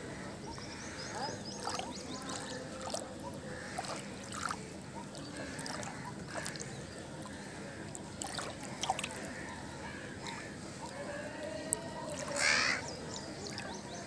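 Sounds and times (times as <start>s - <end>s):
hands sloshing in muddy water: 1.2s - 10.6s
short splashes: 1.5s - 9.4s.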